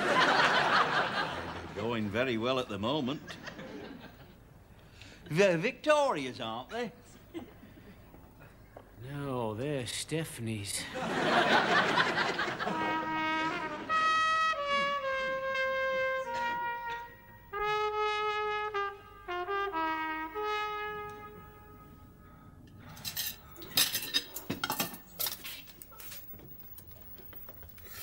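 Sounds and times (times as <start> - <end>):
brass instrument melody: 12.5 - 22.3
plates and cutlery clattering in sink: 23.0 - 26.4.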